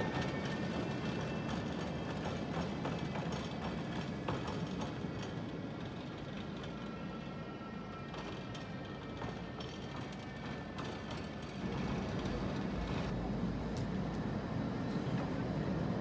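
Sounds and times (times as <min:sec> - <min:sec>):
wheels clacking on rails: 0:00.0 - 0:07.3, 0:07.9 - 0:13.2
tram rolling rumble: 0:00.0 - 0:16.0.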